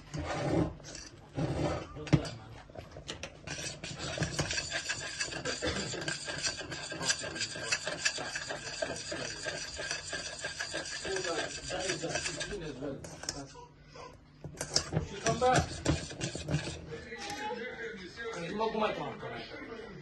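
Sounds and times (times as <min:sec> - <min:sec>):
spoon scraping a metal saucepan: 0:00.0 - 0:02.4, 0:03.1 - 0:13.5, 0:14.4 - 0:17.5.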